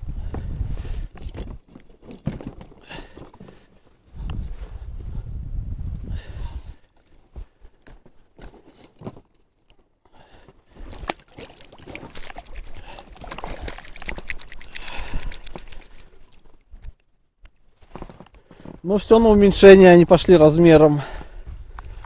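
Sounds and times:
clicks and rustles of handling: 0:01.1 - 0:04.4, 0:10.9 - 0:18.8
water splashing and dripping: 0:11.1 - 0:16.7.

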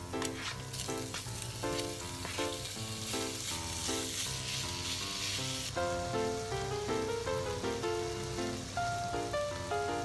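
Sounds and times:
light background music: 0:00.0 - 0:10.0
pork sizzling in a pan: 0:00.0 - 0:10.0
spatula stirring: 0:00.3 - 0:05.7.

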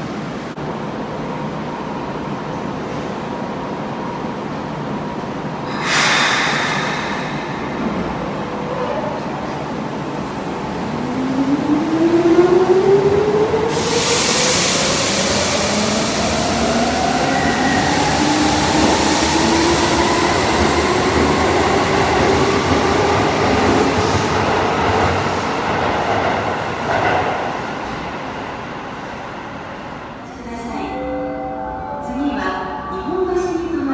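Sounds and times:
rumble of train wheels: 0:00.0 - 0:30.7
loud rushing noise: 0:05.7 - 0:08.7.

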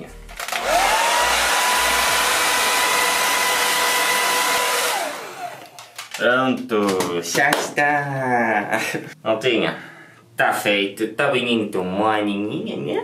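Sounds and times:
hair dryer blowing: 0:00.4 - 0:05.9.

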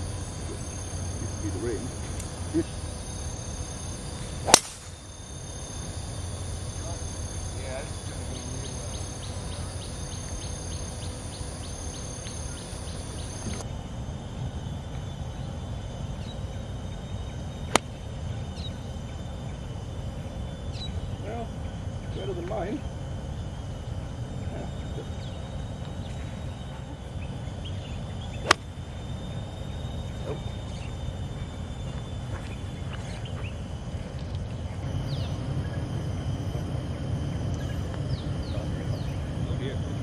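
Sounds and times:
faint bird chirps: 0:00.0 - 0:13.8, 0:14.7 - 0:39.9
steady low rumble: 0:00.0 - 0:40.0
golf club striking ball: 0:04.4 - 0:04.9, 0:28.4 - 0:28.7.

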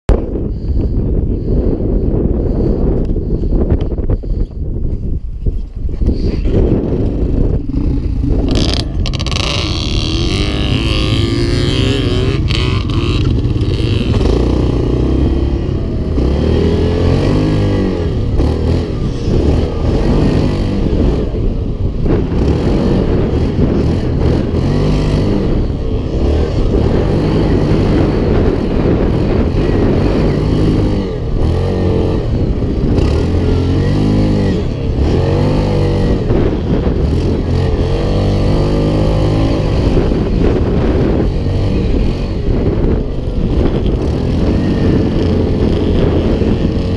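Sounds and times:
quad bike engine revving: 0:06.0 - 0:46.9.

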